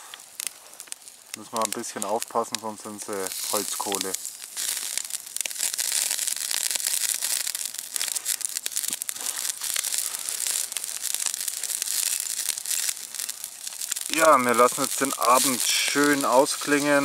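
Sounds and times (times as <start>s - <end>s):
campfire crackling and popping: 0.0s - 17.0s
sausages sizzling on grill: 0.0s - 17.0s.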